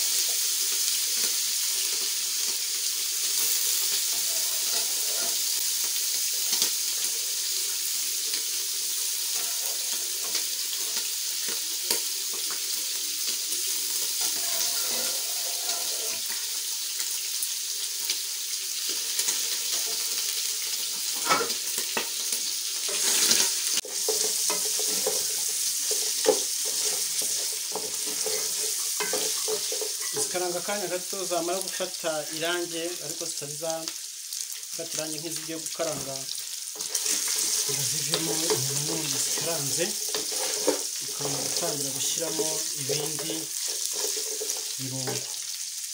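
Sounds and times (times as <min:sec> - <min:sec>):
meat sizzling in pot: 0:00.0 - 0:45.9
utensil scraping pot: 0:03.9 - 0:05.6, 0:14.1 - 0:16.4, 0:22.8 - 0:30.4, 0:36.8 - 0:45.2.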